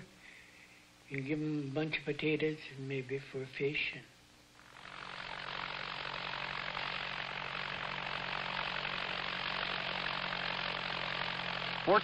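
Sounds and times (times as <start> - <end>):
tractor engine running: 4.6 - 12.0.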